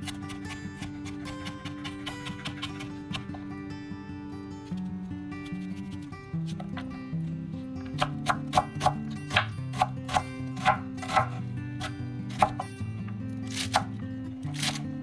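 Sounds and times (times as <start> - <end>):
knife chopping on wooden board: 0.0 - 3.4, 8.0 - 12.6
acoustic guitar music: 0.0 - 15.0.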